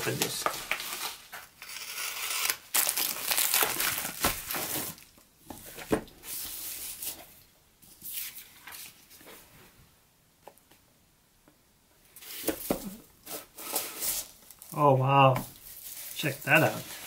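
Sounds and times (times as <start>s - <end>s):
plastic bag tearing and crinkling: 0.0s - 5.1s.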